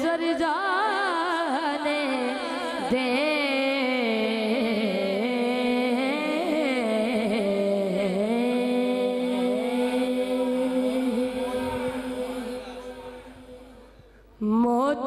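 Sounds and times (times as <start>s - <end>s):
boy singing: 0.0s - 13.7s.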